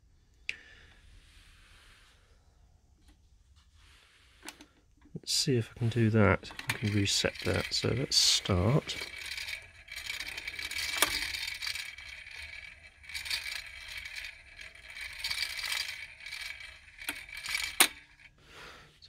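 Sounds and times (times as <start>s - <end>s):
loose uneven rattle: 5.5s - 18.4s
turntable running: 5.8s - 18.3s.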